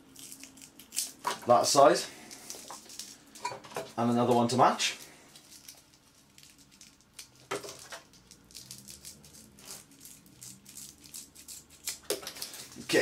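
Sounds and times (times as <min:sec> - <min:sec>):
scissors cutting velcro: 0:08.2 - 0:12.4.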